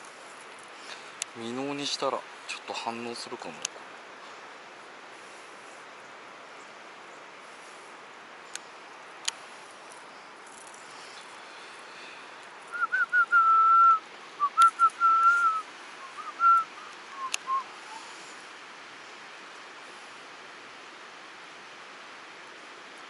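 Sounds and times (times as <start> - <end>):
stream water rushing: 0.0 - 23.0
person whistling a tune: 12.7 - 17.7.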